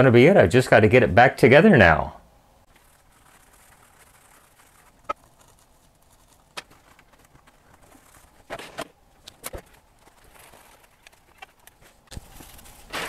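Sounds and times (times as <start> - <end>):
paper towel rustling: 2.7 - 13.0.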